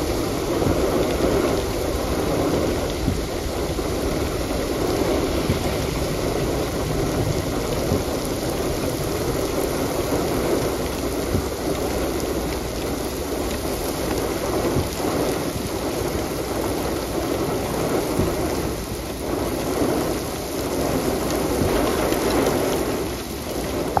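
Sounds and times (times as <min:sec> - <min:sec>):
heavy rain pouring: 0:00.0 - 0:24.0.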